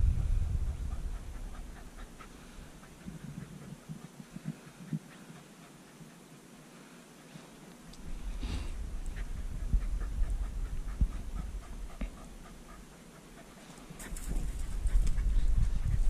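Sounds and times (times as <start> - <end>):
low rumble: 0.0 - 3.6, 8.1 - 13.0
dog panting: 0.2 - 16.0.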